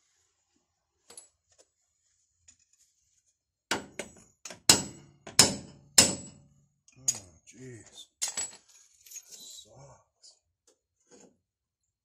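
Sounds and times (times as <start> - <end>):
hammer striking steel: 3.7 - 6.4.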